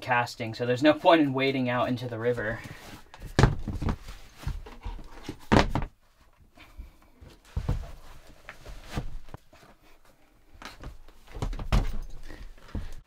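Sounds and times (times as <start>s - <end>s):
rustling: 2.2s - 13.0s
boot thumping on wooden floor: 3.3s - 5.9s.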